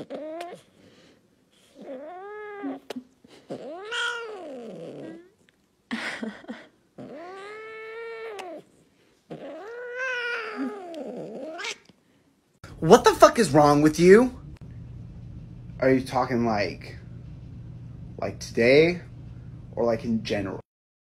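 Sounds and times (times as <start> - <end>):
cat meowing: 9.3 - 11.9.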